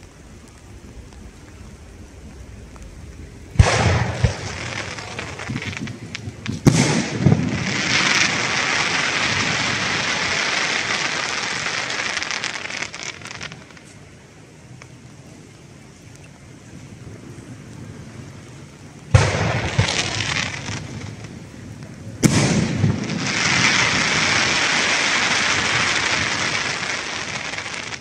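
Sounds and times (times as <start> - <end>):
firework crackling hiss: 0.0 - 15.8, 16.9 - 28.0
firework shells bursting: 3.6 - 13.9.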